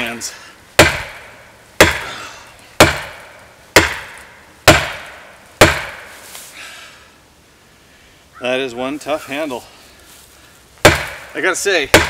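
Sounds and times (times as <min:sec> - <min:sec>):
axe striking tree trunk: 0:00.8 - 0:02.2, 0:02.8 - 0:06.2, 0:10.8 - 0:12.0.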